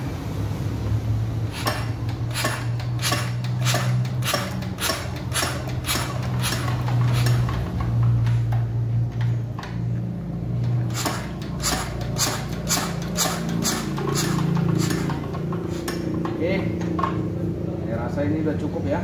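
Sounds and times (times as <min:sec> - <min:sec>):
injector nozzle spraying: 0:01.5 - 0:07.4, 0:10.9 - 0:16.0.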